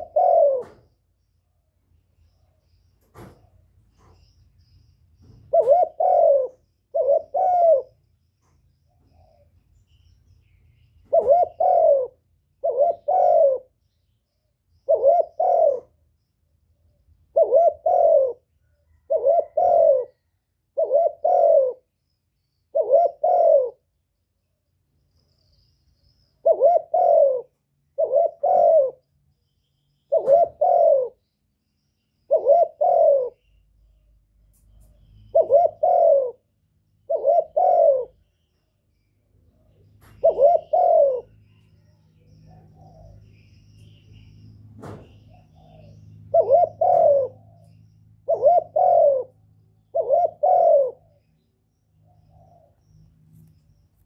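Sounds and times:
dove cooing: 0.0s - 1.0s, 5.2s - 9.5s, 11.0s - 13.8s, 14.8s - 16.0s, 17.2s - 21.9s, 22.7s - 23.9s, 26.4s - 29.1s, 30.0s - 31.4s, 32.2s - 33.7s, 35.0s - 53.0s.

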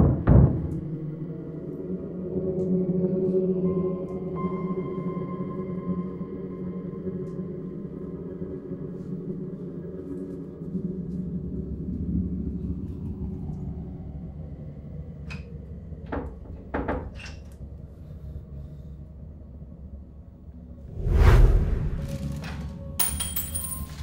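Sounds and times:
low ominous drone: 0.6s - 16.0s, 17.7s - 23.0s
loud rumble: 20.9s - 22.5s.

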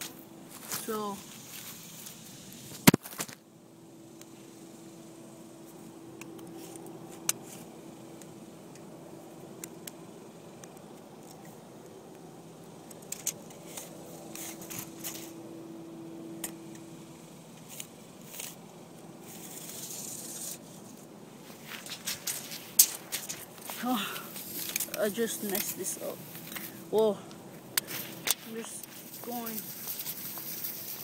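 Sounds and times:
faint steady hum: 0.0s - 31.0s
short rustle: 19.2s - 26.9s, 27.8s - 31.0s.

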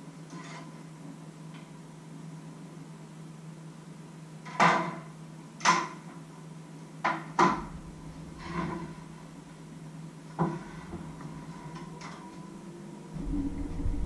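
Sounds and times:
steady low hum: 7.4s - 14.0s.

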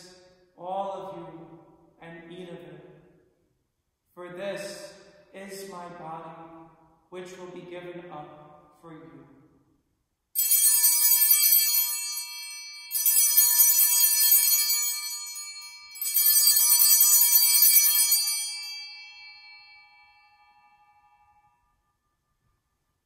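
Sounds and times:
altar bells ringing: 10.4s - 21.9s.

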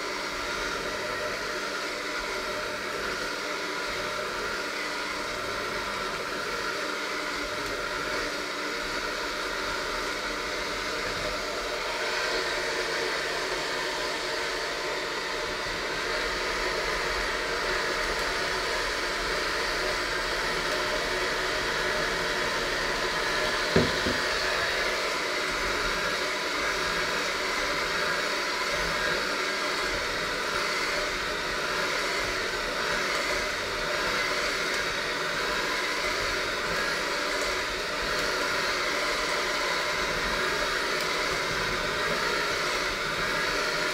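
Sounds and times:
electric hand mixer whirring: 0.0s - 43.9s.

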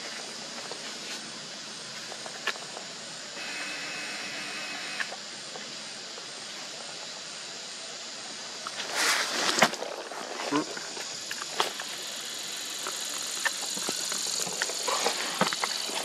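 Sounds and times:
faint steady tone: 0.0s - 8.8s
outdoor background hiss: 0.0s - 16.0s.

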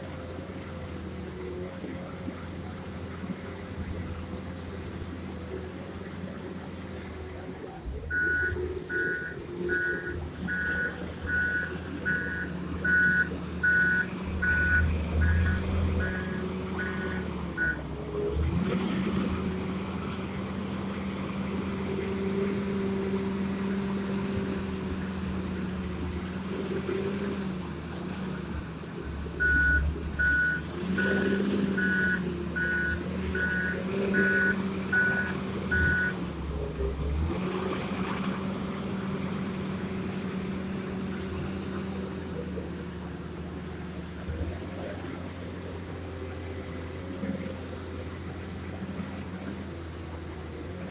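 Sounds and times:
diesel engine running: 0.0s - 50.9s
reverse alarm beeping: 8.1s - 17.8s, 29.4s - 36.1s.

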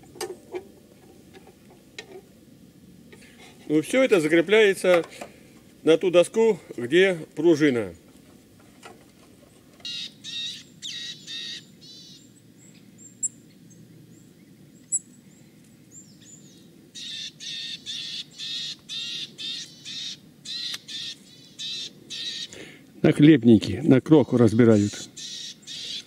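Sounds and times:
birds giving harsh calls: 9.5s - 23.0s, 24.1s - 26.0s.

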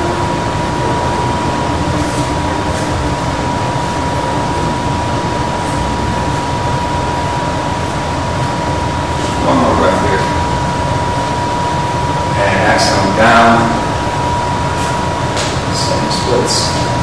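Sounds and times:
thin high whine: 0.0s - 17.0s.

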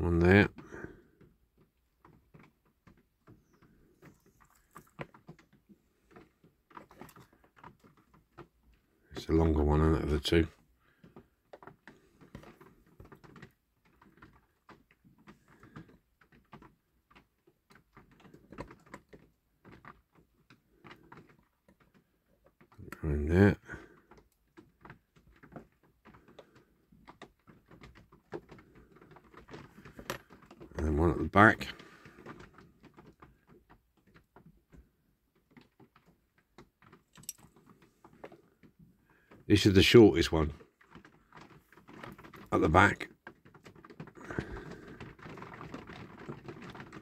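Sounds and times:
small clicks and taps: 0.5s - 9.4s, 10.4s - 23.0s, 23.6s - 39.5s.

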